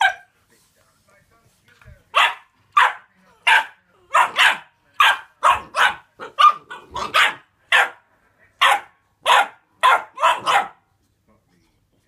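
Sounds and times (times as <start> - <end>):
puppy barking: 0.0 - 0.3, 2.1 - 8.0, 8.6 - 10.8.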